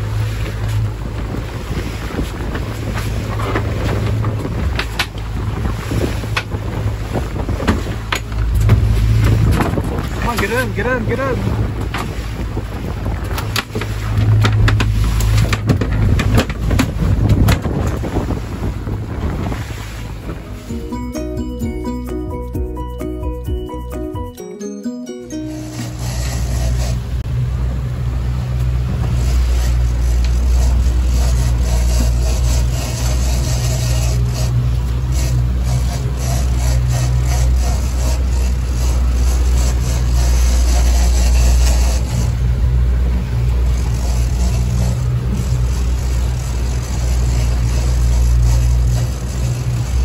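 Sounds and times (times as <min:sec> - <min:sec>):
wind buffeting microphone: 0:00.0 - 0:20.8, 0:26.6 - 0:50.0
outboard motor running: 0:00.0 - 0:50.0
fish thrashing knocks and slaps: 0:00.3 - 0:10.5, 0:11.5 - 0:20.4.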